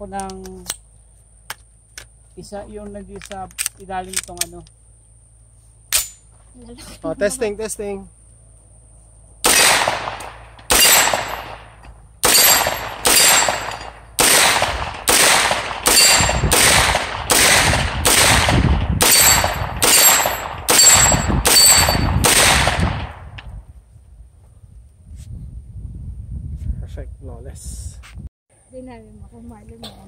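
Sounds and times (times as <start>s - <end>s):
pistol firing semi-automatic shots: 9.4s - 23.2s.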